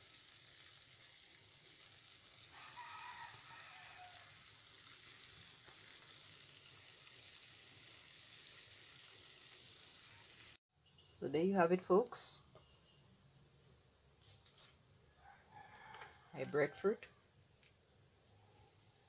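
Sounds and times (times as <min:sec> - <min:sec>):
stew sizzling in a frying pan: 0:00.0 - 0:10.6.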